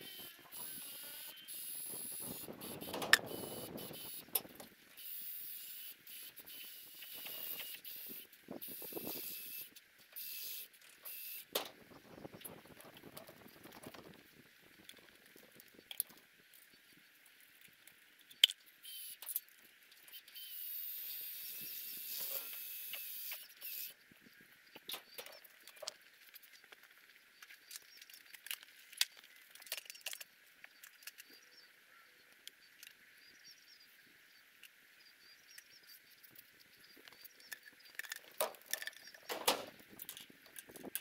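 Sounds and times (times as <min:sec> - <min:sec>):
clicks and knocks on metal roof: 0:39.3 - 0:39.8.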